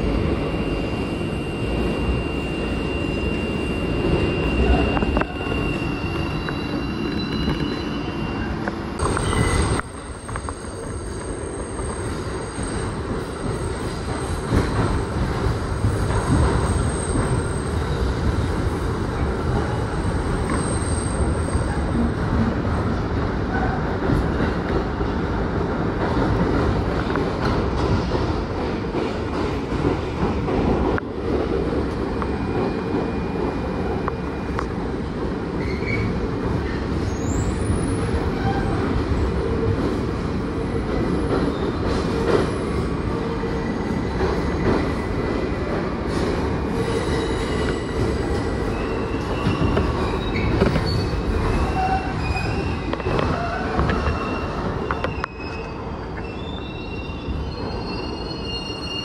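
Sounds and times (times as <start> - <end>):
wheels squealing on rails: 0.0 - 15.1, 15.8 - 18.4, 19.2 - 22.2, 35.6 - 39.3, 41.2 - 59.0
subway train wheels rumbling: 0.0 - 59.0.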